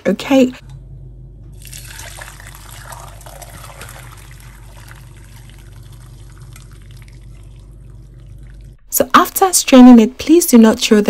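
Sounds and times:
liquid pouring through a strainer: 1.6s - 8.8s
liquid splashing and trickling: 1.6s - 8.8s.

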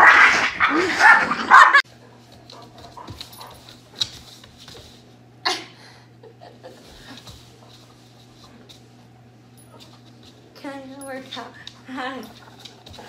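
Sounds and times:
small dog yapping: 0.0s - 1.8s
steady low hum: 0.4s - 13.0s.

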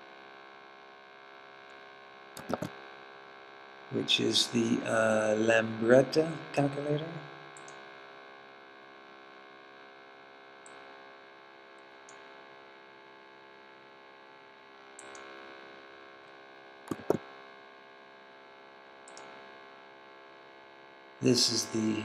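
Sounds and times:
electrical mains hum: 1.3s - 8.2s, 9.9s - 22.0s
computer mouse double click: 2.4s - 2.7s, 16.9s - 17.2s
faint ticks: 12.1s - 12.3s, 19.1s - 19.4s.

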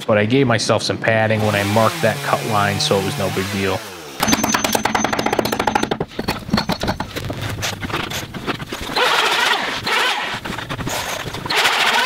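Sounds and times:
loud rasping bursts: 1.4s - 12.0s
wood pieces knocking: 4.2s - 11.6s.

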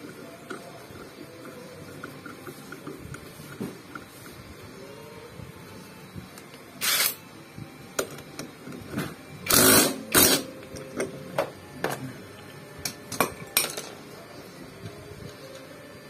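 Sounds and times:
impact wrench hammering: 9.5s - 10.5s.

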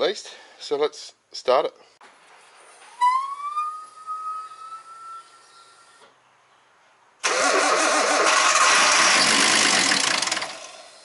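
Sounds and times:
starter cranking engine: 7.2s - 10.8s.

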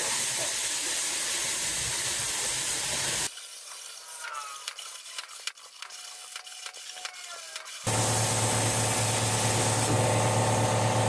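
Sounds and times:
plasma cutter hissing: 0.0s - 5.1s, 7.2s - 11.0s.

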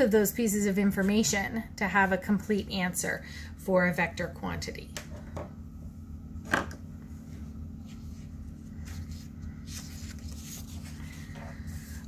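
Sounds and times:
steady low hum: 0.0s - 12.0s
paper rustling: 7.8s - 12.0s.

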